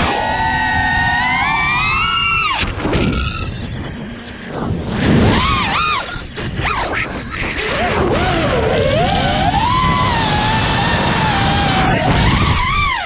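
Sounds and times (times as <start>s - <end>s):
quadcopter motors whining: 0.0s - 4.3s, 7.5s - 13.0s
wind on microphone: 0.0s - 13.0s.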